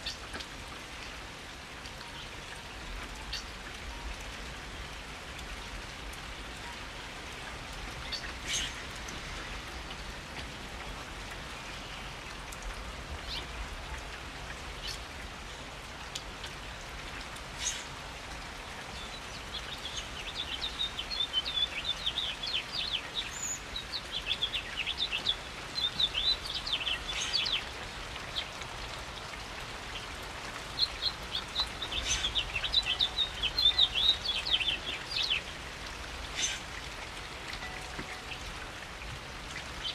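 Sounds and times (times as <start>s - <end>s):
loud water drip: 0.0s - 39.9s
steady rain: 0.0s - 39.9s
bird chirping: 30.8s - 35.4s.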